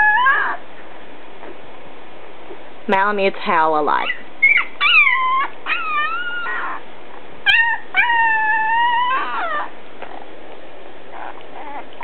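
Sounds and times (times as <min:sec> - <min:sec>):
puppy howling: 0:00.0 - 0:00.6, 0:04.4 - 0:06.8, 0:07.4 - 0:10.3, 0:11.1 - 0:12.0.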